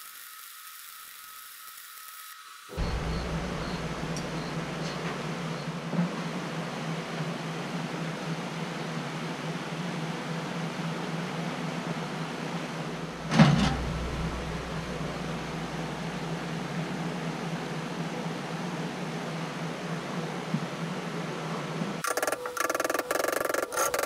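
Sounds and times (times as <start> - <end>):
steady low hum: 2.7 - 24.0.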